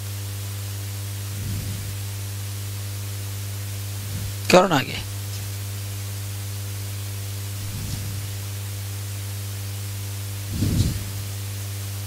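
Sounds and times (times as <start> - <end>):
electrical mains hum: 0.0 - 12.0
microphone hiss: 0.0 - 12.0
faint mumble: 1.3 - 2.0, 4.0 - 4.7, 10.5 - 11.2.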